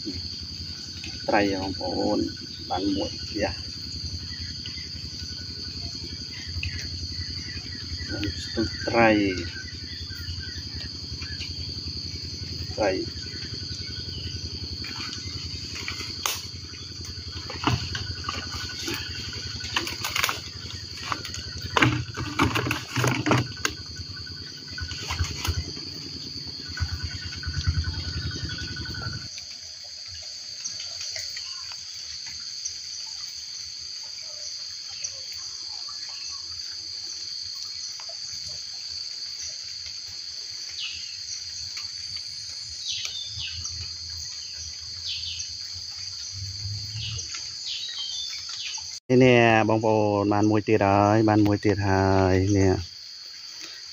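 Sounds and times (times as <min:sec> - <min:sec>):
insects droning: 0:00.0 - 0:53.9
bird chirps: 0:12.6 - 0:29.3
branches knocking and rustling: 0:14.8 - 0:23.9, 0:24.7 - 0:25.8.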